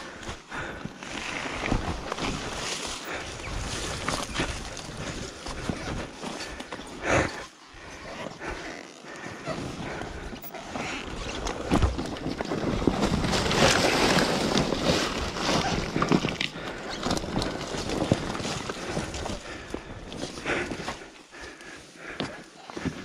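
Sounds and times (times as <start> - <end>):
tyres crunching over dirt and sticks: 0.0 - 23.0
brush scraping against dirt bike: 8.2 - 19.2.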